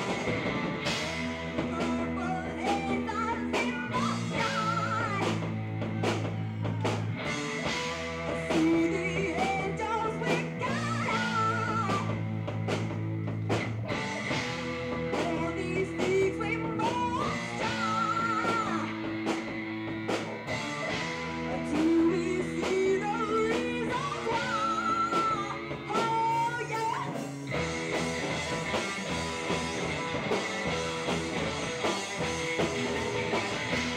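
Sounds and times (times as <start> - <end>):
drum kit: 0.0 - 33.9
electric guitars: 0.0 - 33.9
woman singing: 1.6 - 5.5, 8.5 - 12.2, 15.1 - 19.0, 21.5 - 27.2.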